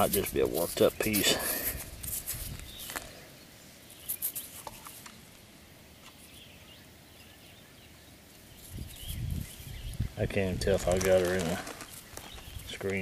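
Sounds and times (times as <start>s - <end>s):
gravel stones clicking together: 0.0s - 3.2s, 10.4s - 13.0s
faint outdoor background: 0.0s - 13.0s.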